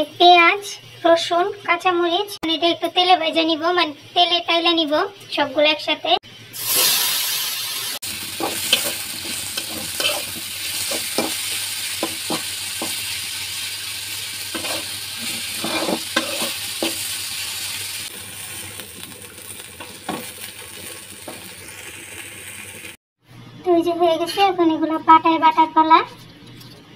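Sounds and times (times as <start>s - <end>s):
vegetables sizzling in hot oil: 6.5s - 23.0s
spatula scraping a pan: 8.4s - 13.2s, 14.4s - 17.2s.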